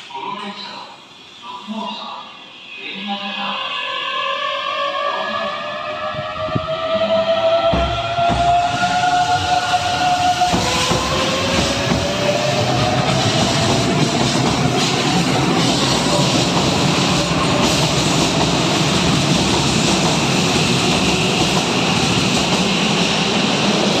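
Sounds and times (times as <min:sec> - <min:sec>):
train motor whine: 0:05.8 - 0:19.1
wheels rumbling on rail: 0:05.9 - 0:24.0.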